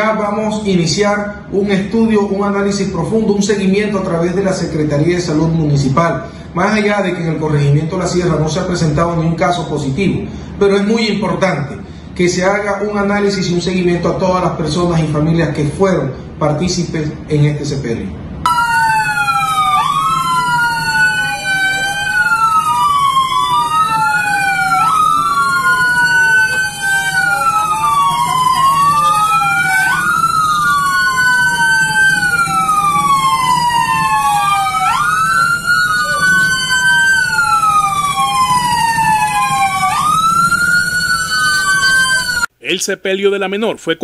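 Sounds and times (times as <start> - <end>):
siren wailing: 18.4 - 42.5.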